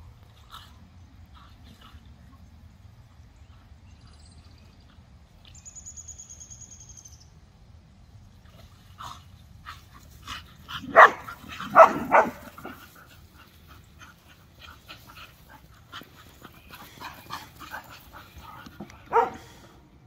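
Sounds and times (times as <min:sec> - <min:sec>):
dog barking: 0:10.8 - 0:12.5, 0:19.1 - 0:19.5.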